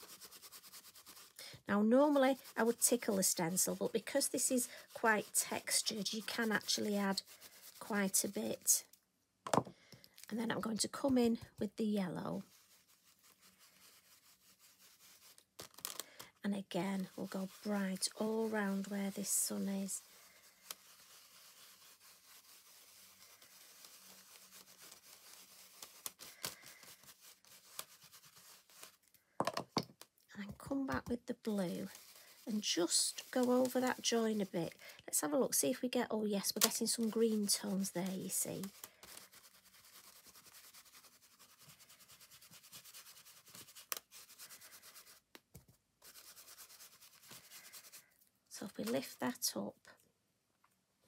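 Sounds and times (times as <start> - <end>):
foam tool scrubbing on card: 0.0 - 8.7, 12.4 - 15.8, 16.6 - 29.0, 31.4 - 34.9, 36.5 - 45.3, 46.0 - 48.1.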